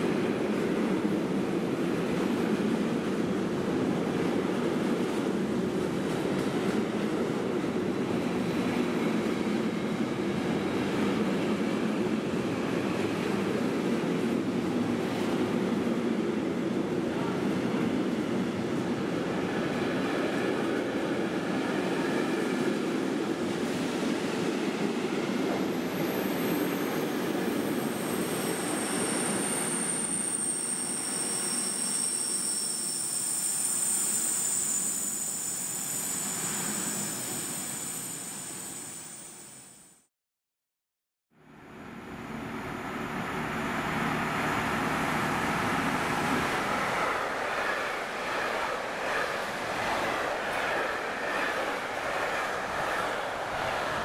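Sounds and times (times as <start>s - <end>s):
train wheels rumbling on rail: 0.0s - 38.8s, 42.6s - 54.0s
high-pitched squeal: 26.9s - 40.0s, 42.7s - 54.0s.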